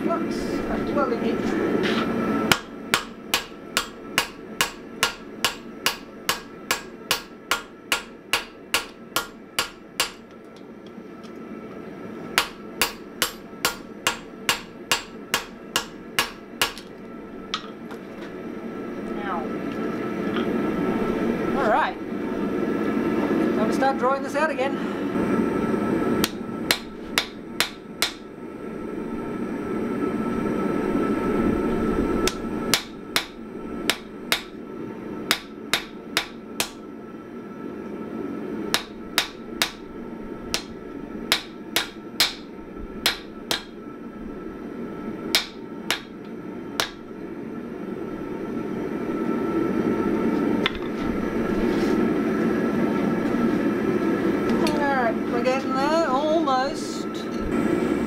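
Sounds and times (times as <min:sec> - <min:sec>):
hammer ringing on hot steel: 0:02.5 - 0:10.3, 0:12.4 - 0:16.8, 0:26.2 - 0:28.2, 0:32.3 - 0:34.6, 0:35.3 - 0:36.8, 0:38.7 - 0:39.8, 0:41.3 - 0:43.8, 0:45.3 - 0:46.2.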